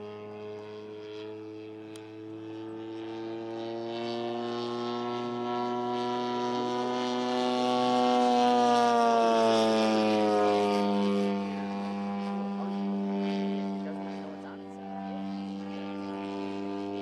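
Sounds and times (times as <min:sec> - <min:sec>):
model plane engine and propeller: 0:00.0 - 0:17.0.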